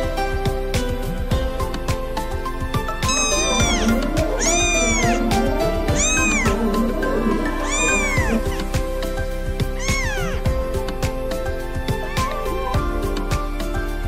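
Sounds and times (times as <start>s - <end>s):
background music: 0.0s - 14.0s
kitten meowing: 3.0s - 8.8s, 9.6s - 10.5s.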